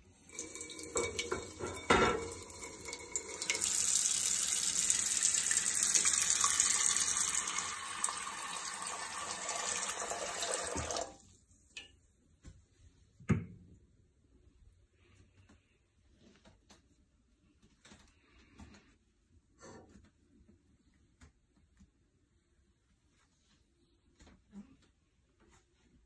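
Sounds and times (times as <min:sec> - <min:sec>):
water pouring into metal pot: 0:00.0 - 0:11.2.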